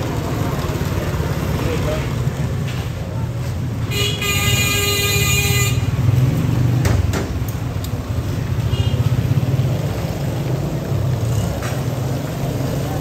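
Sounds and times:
low rumble of traffic: 0.0 - 13.0
vehicle horn: 3.9 - 6.0.

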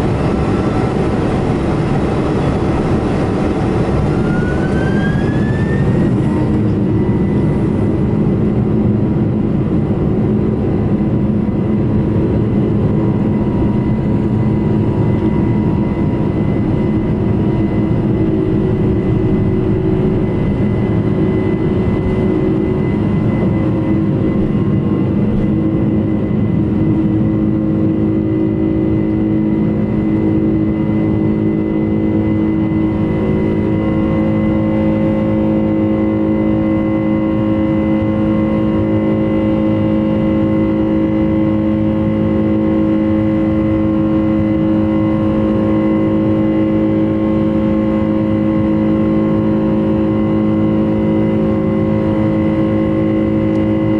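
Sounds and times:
runway rumble from wheels: 0.0 - 36.1
jet engine whine: 0.0 - 53.9.

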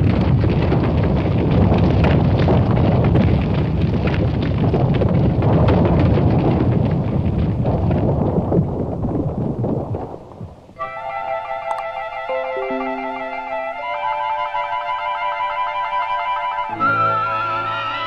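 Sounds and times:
cartoon eruption rumble: 0.0 - 10.8.

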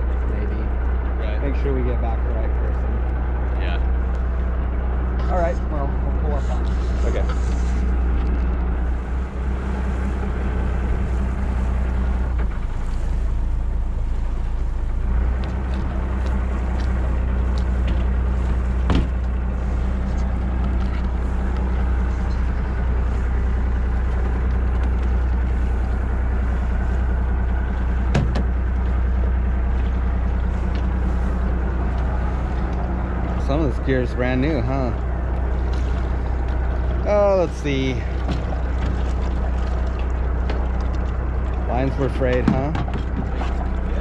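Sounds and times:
boat engine humming: 0.0 - 44.0
sharp knocks: 18.8 - 19.2, 28.1 - 28.5.

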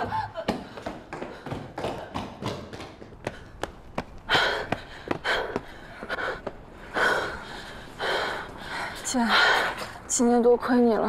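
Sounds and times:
women panting and gasping: 0.0 - 2.5, 3.1 - 10.1
quick footsteps on pavement: 0.0 - 9.0.

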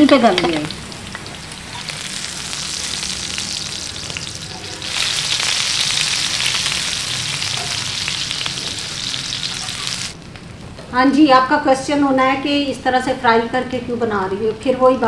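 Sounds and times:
food sizzling on griddle: 0.3 - 10.2.

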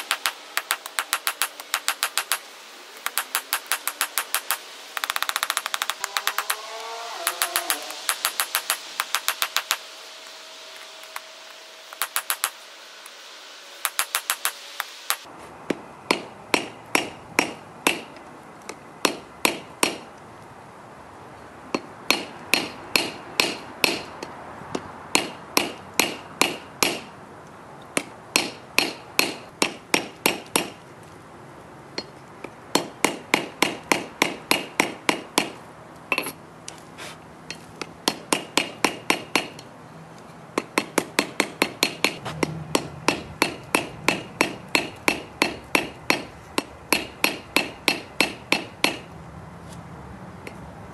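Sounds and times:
hammer striking metal on anvil: 7.2 - 13.2, 13.8 - 18.2, 21.7 - 24.2, 25.1 - 27.1, 28.0 - 30.8, 37.5 - 39.6, 40.6 - 49.1.

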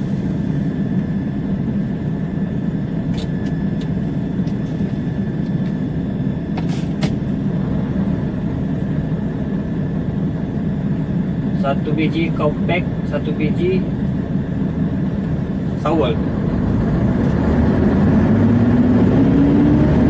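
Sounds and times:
diesel truck engine running: 4.4 - 20.0.

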